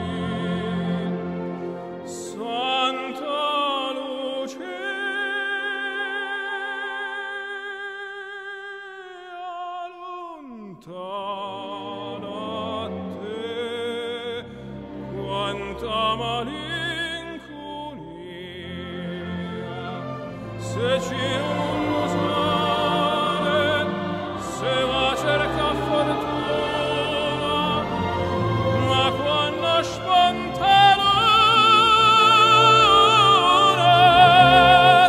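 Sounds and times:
classical accompaniment: 0.0s - 6.8s, 11.3s - 35.0s
operatic singing: 0.0s - 35.0s.

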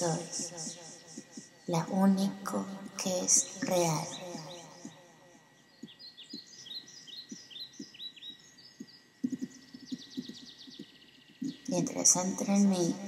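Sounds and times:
birds chirping: 5.6s - 13.0s
soft low thuds: 8.8s - 11.7s.

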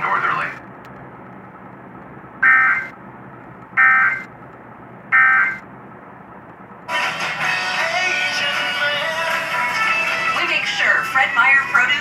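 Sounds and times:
shrill digital tone bursts: 2.4s - 2.9s, 3.8s - 4.3s, 5.2s - 5.6s.

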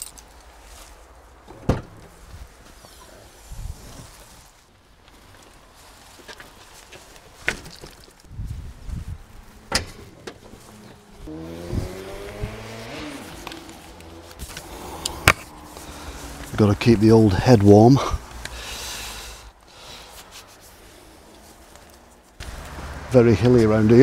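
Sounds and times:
van tailgate shutting: 1.5s - 2.1s, 9.7s - 10.6s
passing vehicle engine: 9.6s - 17.1s, 20.8s - 24.0s.

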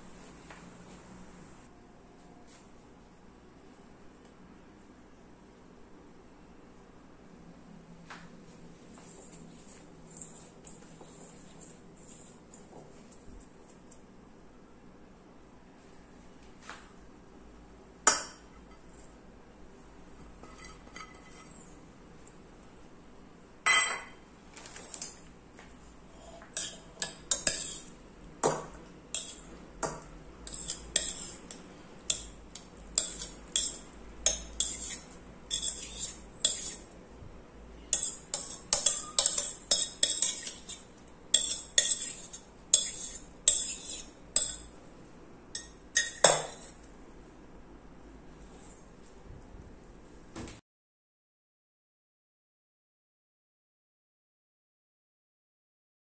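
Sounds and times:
spoon scraping steel vessels: 9.2s - 12.7s, 20.2s - 21.8s, 26.1s - 28.0s, 28.8s - 37.0s, 37.9s - 44.7s, 45.6s - 46.8s.

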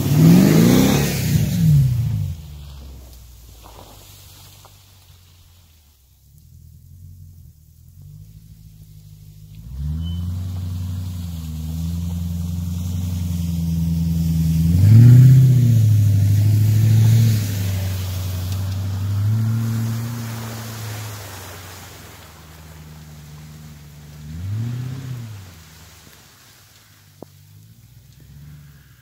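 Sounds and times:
car engine revving under throttle: 0.0s - 2.4s, 6.4s - 29.0s.

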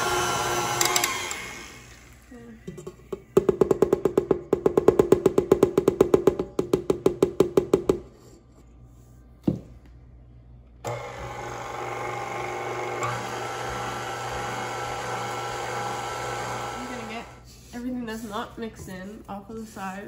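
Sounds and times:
stand mixer motor running: 0.0s - 2.2s, 10.9s - 17.4s.

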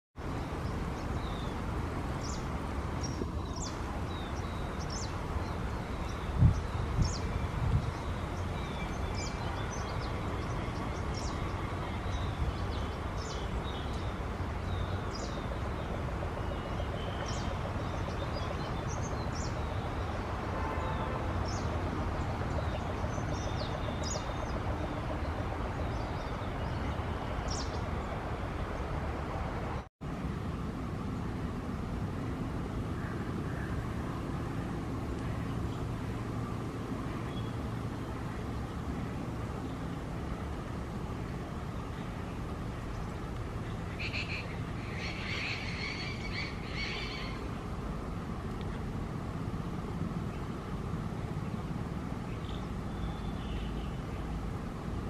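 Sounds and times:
low rush of background noise: 0.2s - 55.0s
small birds chirping: 0.3s - 28.9s, 41.4s - 47.6s.

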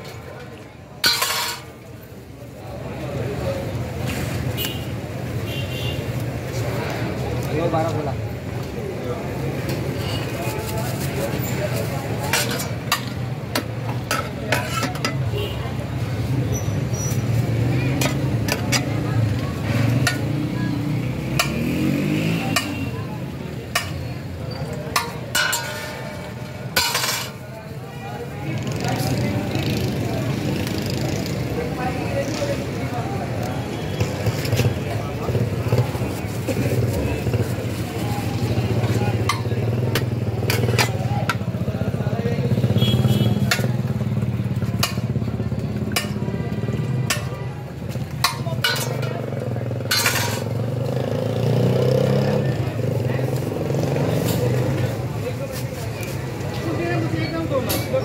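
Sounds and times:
steel ladle clinking on pot rim: 1.0s - 1.8s, 24.9s - 27.4s, 48.2s - 49.1s, 49.8s - 50.5s.

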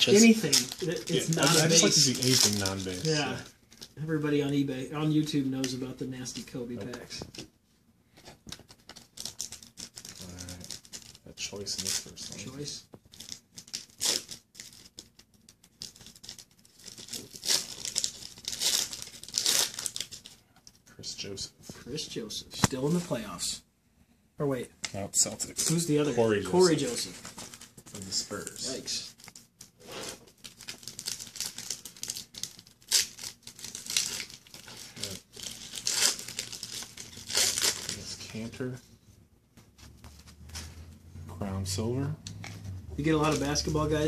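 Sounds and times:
foil wrapper tearing and crinkling: 0.0s - 3.9s, 8.5s - 20.4s, 26.6s - 38.6s.

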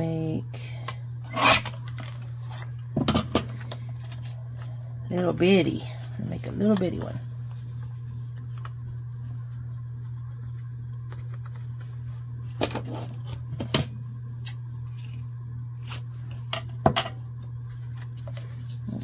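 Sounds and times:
low hum: 0.0s - 19.0s
paper being folded: 3.5s - 13.4s, 17.6s - 19.0s.

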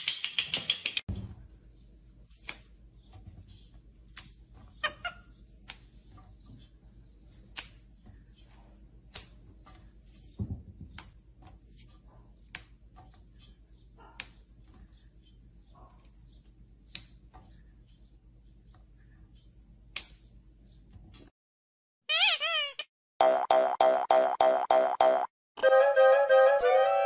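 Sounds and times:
green beans snapping: 2.3s - 2.8s, 4.1s - 4.4s.

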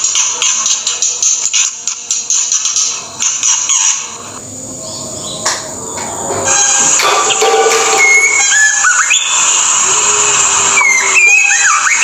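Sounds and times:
high-pitched hiss: 6.4s - 12.0s
bird singing whistled notes: 7.9s - 9.6s, 10.8s - 12.0s.

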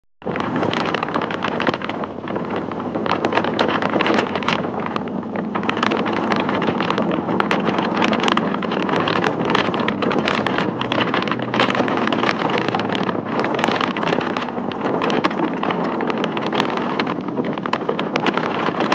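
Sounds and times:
driving rain: 0.2s - 18.9s
gusty crackles: 0.2s - 18.9s
wind buffeting microphone: 0.2s - 18.9s.

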